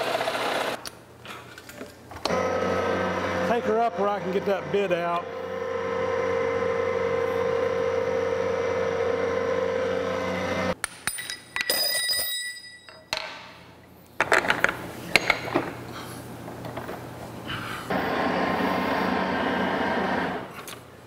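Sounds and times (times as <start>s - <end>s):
drill running with hum: 2.2s - 10.8s, 17.9s - 20.5s
metallic clinking and ringing: 11.0s - 13.2s.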